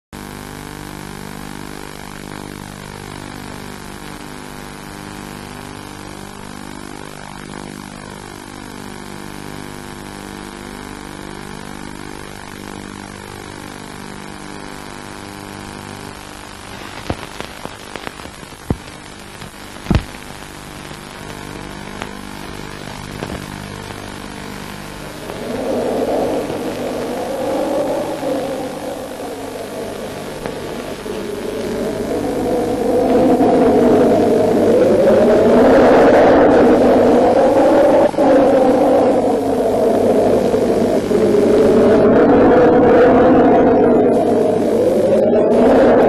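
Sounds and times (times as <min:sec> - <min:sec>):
videotape hiss: 0:00.2 - 0:46.0
low hum: 0:16.6 - 0:46.0
sharp clicks and pops: 0:16.7 - 0:24.3, 0:29.7 - 0:32.0.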